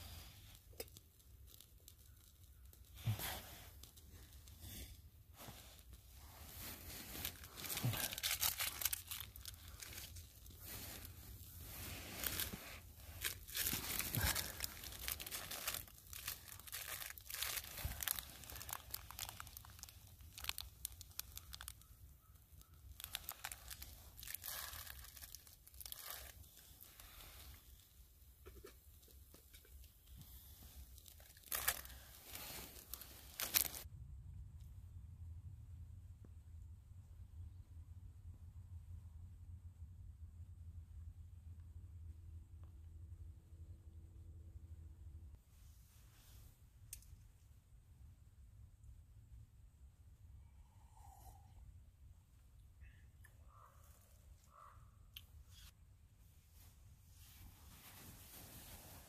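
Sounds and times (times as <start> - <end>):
crinkling material: 0.0 - 33.9, 55.5 - 59.0
sharp crackles: 0.2 - 28.0, 29.5 - 33.9.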